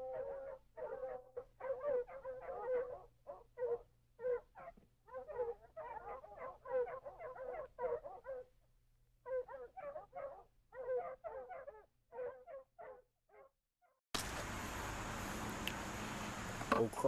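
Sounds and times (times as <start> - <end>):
dog yipping and whining: 0.0 - 8.5, 9.3 - 13.5.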